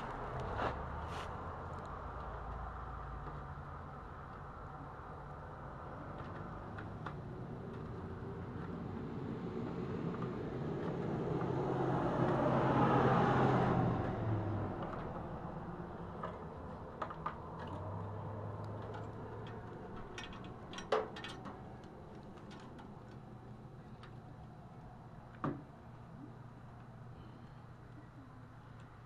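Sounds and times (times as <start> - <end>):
vehicle passing by: 0.0 - 3.6, 5.9 - 23.4.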